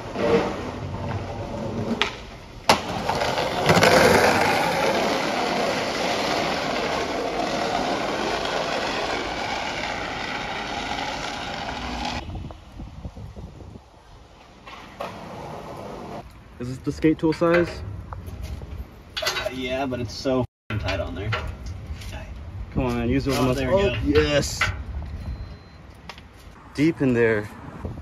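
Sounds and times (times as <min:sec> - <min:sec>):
skateboard impact: 0:00.0 - 0:12.2
skateboard wheels rolling on asphalt: 0:00.0 - 0:16.3.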